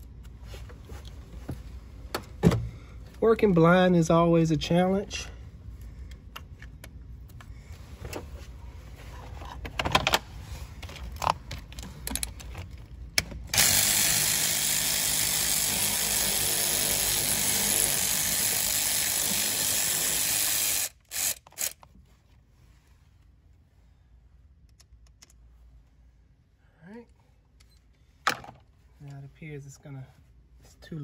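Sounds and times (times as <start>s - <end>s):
power tool spinning bolt: 13.5s - 21.8s.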